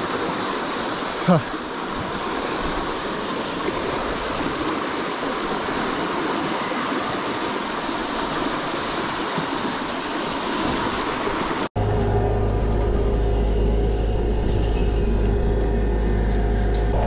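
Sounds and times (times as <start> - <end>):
river rushing: 0.0 - 13.1
steady low hum: 11.8 - 17.0.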